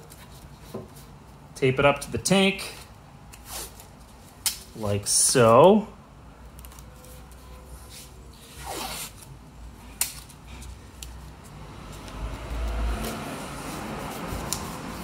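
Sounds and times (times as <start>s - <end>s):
tape rubbed down by hand: 7.0s - 9.2s, 12.0s - 15.0s.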